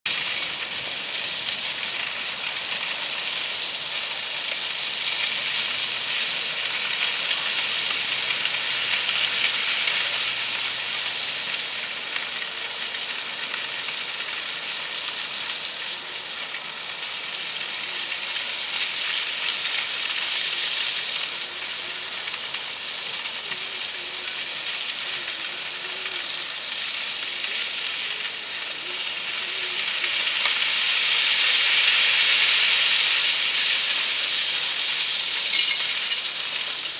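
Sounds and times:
rock ballast pouring: 0:31.4 - 0:36.9.

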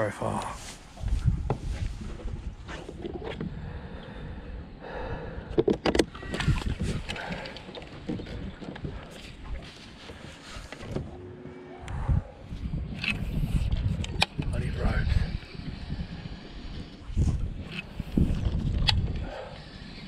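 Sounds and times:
wind: 0:00.0 - 0:20.0
water noise: 0:00.8 - 0:20.0
sharp clicks and knocks: 0:05.6 - 0:06.1.

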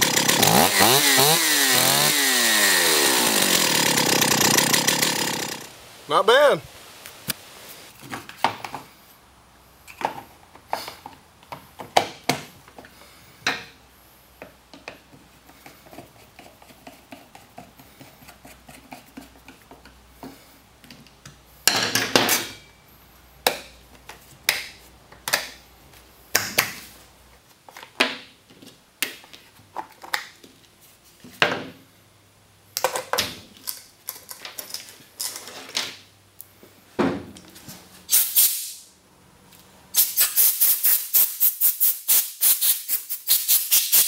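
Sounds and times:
loud rattle: 0:00.0 - 0:05.7.

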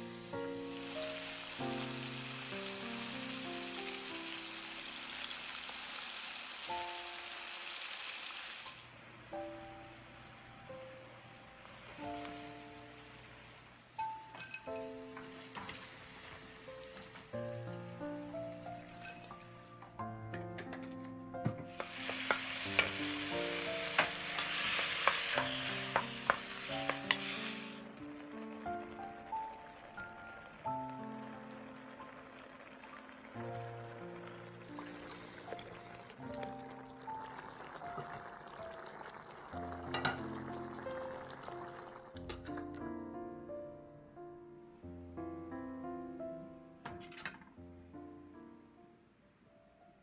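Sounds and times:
soft background music: 0:00.0 - 0:05.3, 0:06.7 - 0:07.7, 0:09.0 - 0:50.0
fish deep-frying in hot oil: 0:00.1 - 0:10.7, 0:11.6 - 0:17.3, 0:21.7 - 0:42.2
spatula scraping wok: 0:23.8 - 0:27.9.

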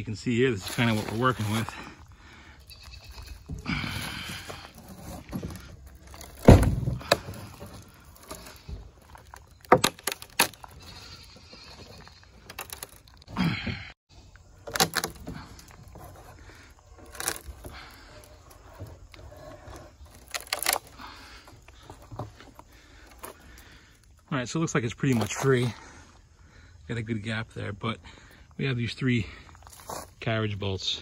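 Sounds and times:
boards creaking: 0:00.6 - 0:24.2.

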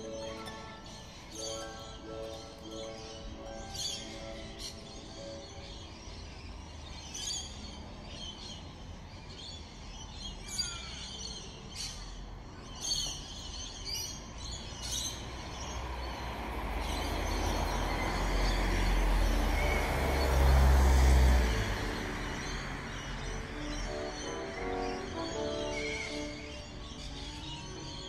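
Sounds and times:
small birds chirping: 0:00.0 - 0:28.0
vehicle approaching: 0:15.1 - 0:28.0.

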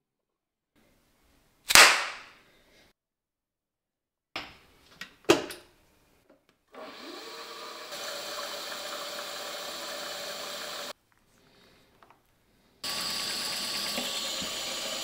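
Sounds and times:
milling machine motor whining: 0:06.8 - 0:10.9.

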